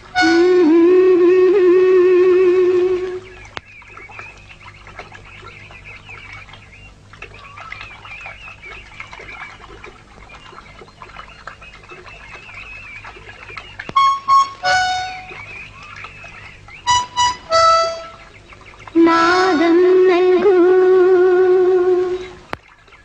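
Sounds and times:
birds chirping: 0.0s - 23.0s
low steady hum: 0.0s - 23.0s
music with loud held notes: 14.0s - 15.5s, 16.9s - 18.3s.

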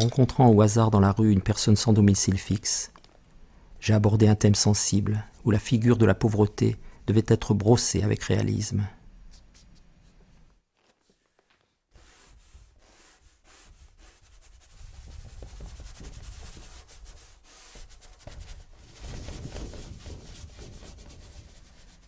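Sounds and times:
paintbrush scrubbing on paper: 11.9s - 22.0s.

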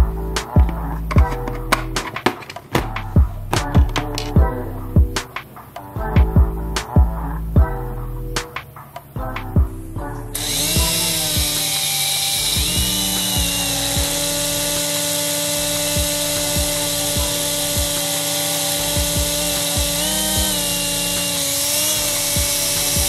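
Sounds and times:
toy helicopter rotors whining: 10.4s - 23.0s.

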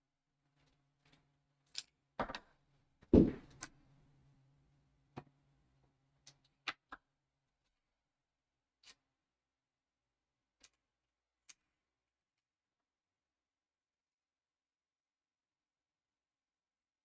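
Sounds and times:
loud thump: 3.2s - 3.5s.

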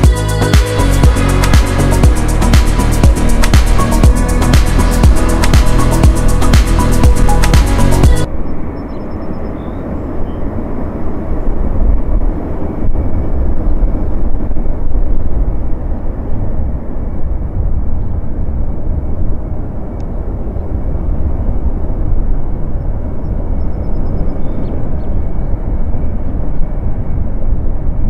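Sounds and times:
jet engine running: 0.0s - 16.2s.

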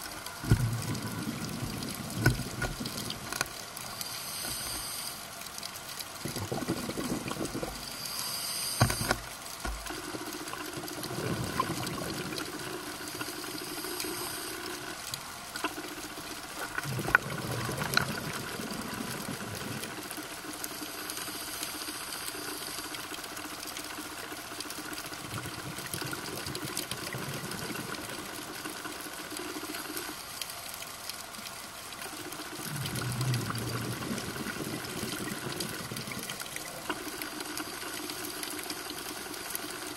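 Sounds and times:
diver exhaling bubbles underwater: 6.2s - 8.0s, 10.6s - 13.3s, 16.6s - 20.1s, 32.6s - 37.2s.

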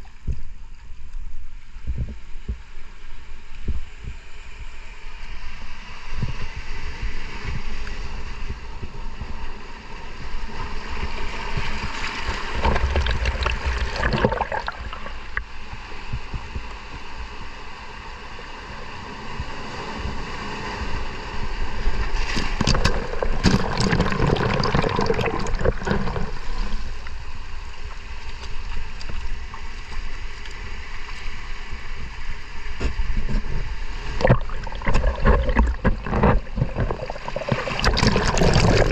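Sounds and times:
water sloshing and gurgling: 10.1s - 16.7s, 18.7s - 38.9s
water splashing and bubbling: 11.4s - 15.6s, 22.1s - 27.2s, 33.9s - 38.9s.

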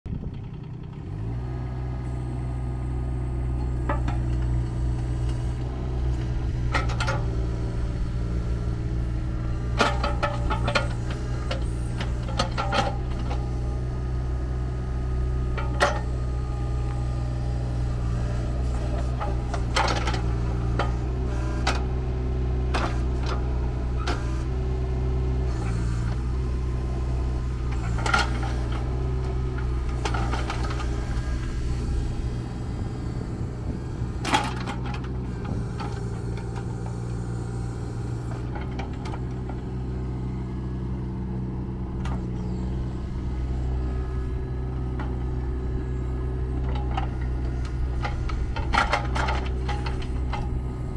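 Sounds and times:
mini excavator diesel engine running: 0.1s - 50.9s.

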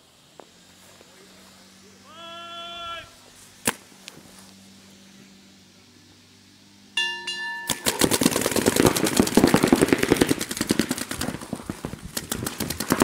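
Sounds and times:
paintball markers firing: 7.7s - 13.0s.

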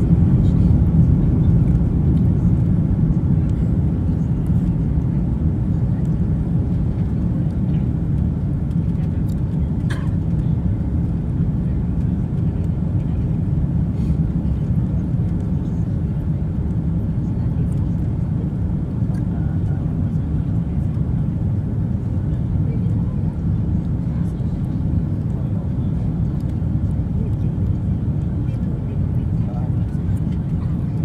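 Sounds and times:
airliner engine rumble: 0.0s - 31.0s.

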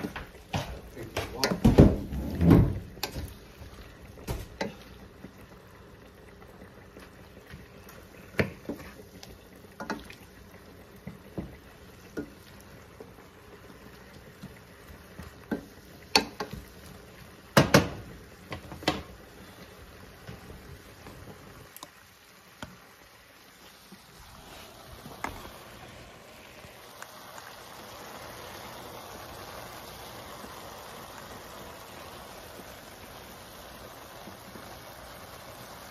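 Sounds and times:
wooden spatula scraping a pan: 0.0s - 3.3s, 8.2s - 9.1s
food simmering in a pan: 0.0s - 35.9s.

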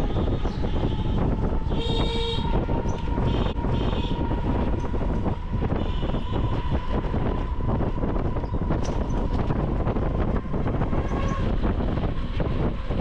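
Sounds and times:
road rumble: 0.0s - 13.0s
wind on microphone: 0.0s - 13.0s.

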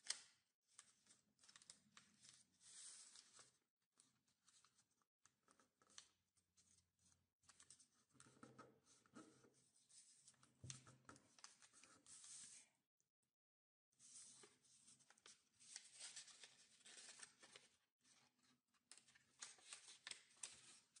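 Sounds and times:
paper rustling and crinkling: 14.1s - 18.2s, 18.9s - 21.0s.

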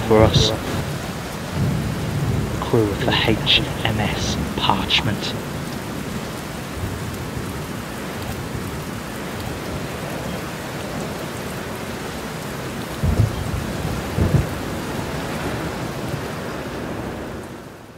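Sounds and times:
low rumbles of thunder: 0.0s - 4.6s, 12.9s - 17.5s
steady rain falling: 0.0s - 17.9s.

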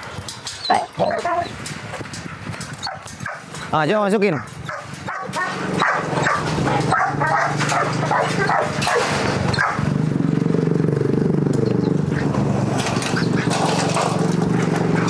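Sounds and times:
dog barking and yipping: 0.5s - 1.7s, 2.7s - 3.6s, 4.2s - 9.9s.

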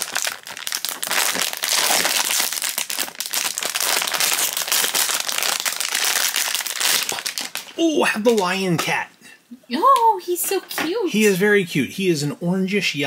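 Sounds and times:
foil bag crinkling: 0.0s - 8.6s.

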